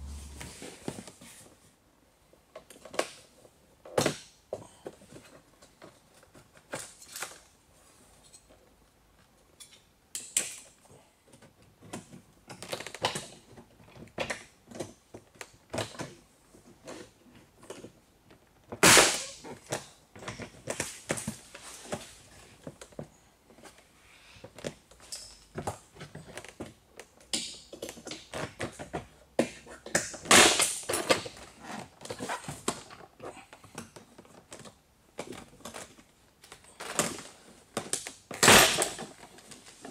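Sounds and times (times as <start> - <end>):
loud plastic snaps: 18.8 - 19.5, 30.0 - 31.3.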